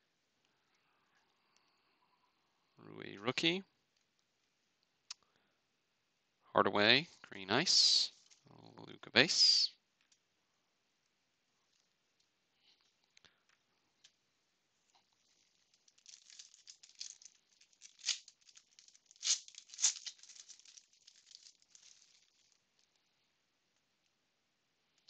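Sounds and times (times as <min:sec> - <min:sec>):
foil wrapper crinkling and tearing: 0:15.0 - 0:22.6.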